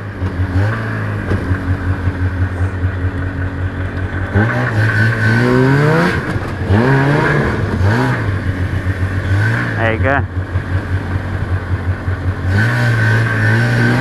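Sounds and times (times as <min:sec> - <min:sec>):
snowmobile engine revving: 0:00.0 - 0:14.0.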